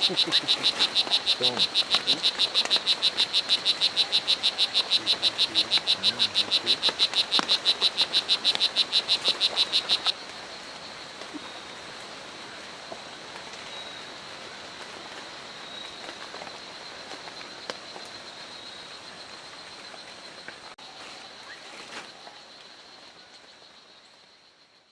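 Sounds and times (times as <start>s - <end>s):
frog calling: 0.0s - 10.3s
rainforest ambience: 0.0s - 24.9s.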